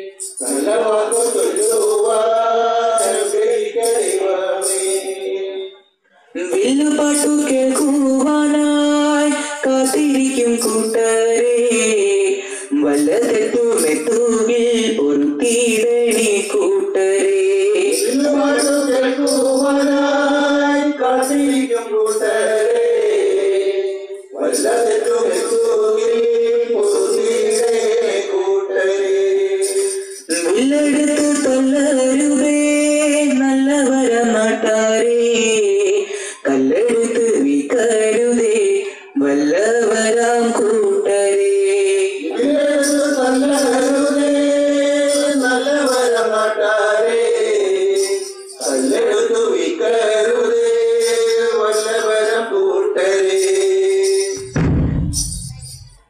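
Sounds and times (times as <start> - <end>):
musical accompaniment: 54.4 - 56.0.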